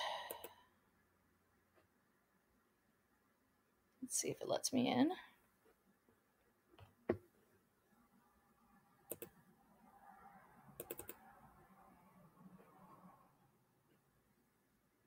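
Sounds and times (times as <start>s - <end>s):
computer mouse clicking: 9.1s - 9.4s, 10.8s - 11.2s.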